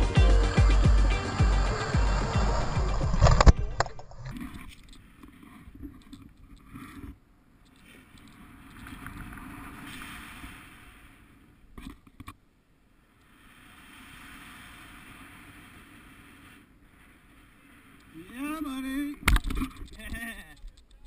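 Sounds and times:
wind rushing over microphone: 1.0s - 4.0s.

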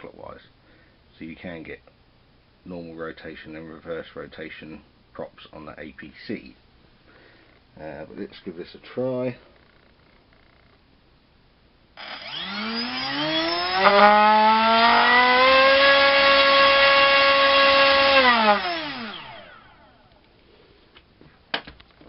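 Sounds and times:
drone motor whining: 12.0s - 20.0s.

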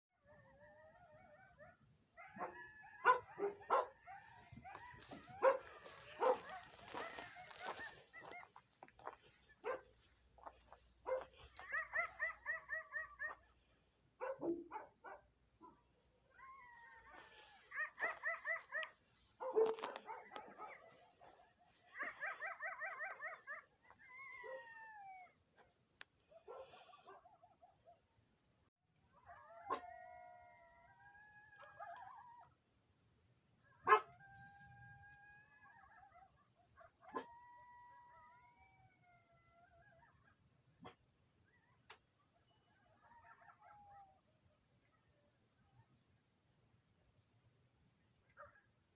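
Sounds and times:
coyotes yipping and howling: 0.2s - 28.1s, 29.0s - 32.7s, 33.6s - 46.1s, 48.2s - 48.7s.

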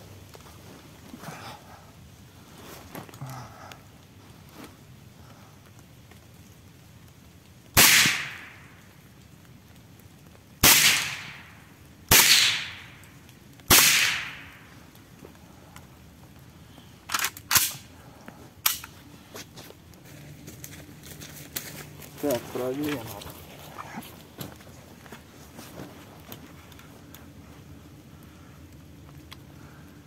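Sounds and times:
shotgun shots echoing: 7.8s - 8.6s, 10.6s - 13.0s, 13.7s - 14.6s.

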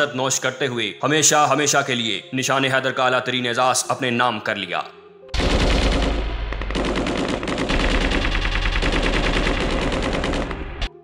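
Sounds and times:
machine-gun fire: 5.4s - 11.0s.

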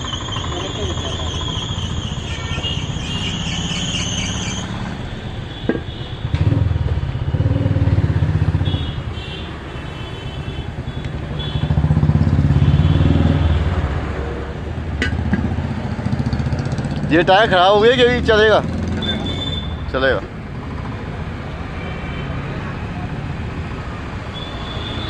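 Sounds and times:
motor vehicle engine rumbling: 0.0s - 8.8s.

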